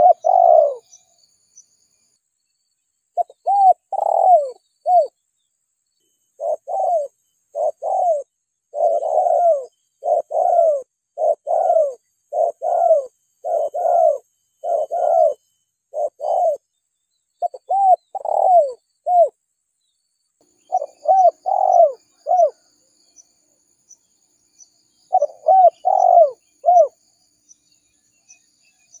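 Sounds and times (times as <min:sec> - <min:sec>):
dove cooing: 0:00.0 - 0:01.0, 0:03.2 - 0:05.1, 0:06.4 - 0:16.6, 0:17.4 - 0:19.3, 0:20.7 - 0:22.6, 0:25.1 - 0:27.0
faint high chirping: 0:00.0 - 0:29.0.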